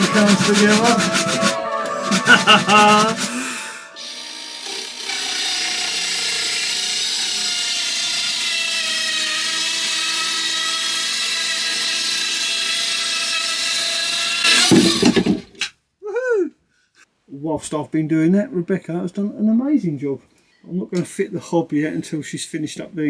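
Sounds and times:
power saw cutting wood: 0.0 - 15.4.

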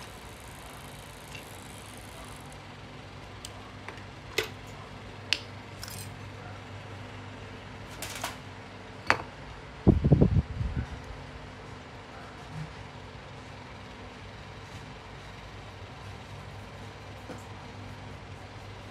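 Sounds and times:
metal tools clinking on workbench: 5.8 - 6.2.

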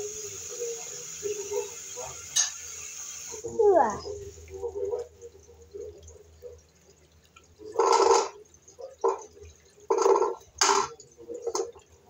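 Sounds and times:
water gurgling down drain: 3.2 - 12.0.

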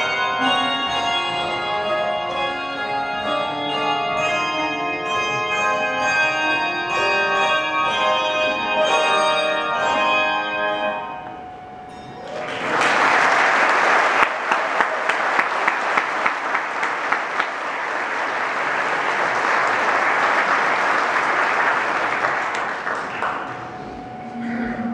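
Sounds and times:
handbells ringing chords: 0.0 - 12.6
audience applauding: 12.2 - 24.0.

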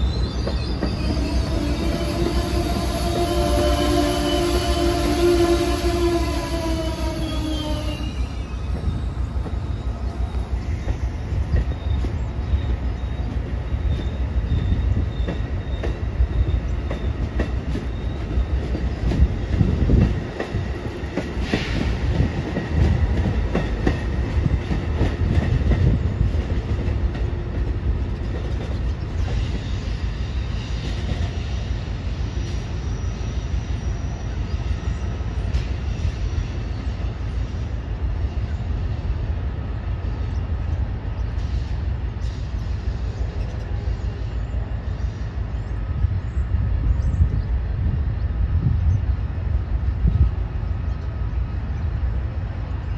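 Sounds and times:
faint high wheel squeal: 0.0 - 17.2, 32.2 - 35.2
train wheels clattering: 10.8 - 30.0.

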